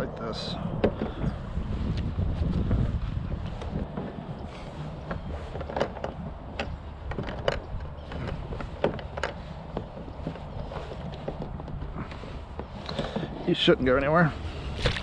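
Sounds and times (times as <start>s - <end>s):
wind rumble: 0.0s - 15.0s
gear clicking and knocking: 3.6s - 13.3s.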